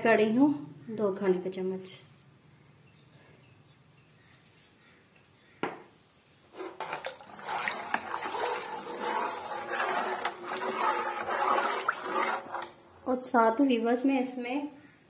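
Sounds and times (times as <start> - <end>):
spoon stirring liquid in metal pan: 6.5 - 12.9.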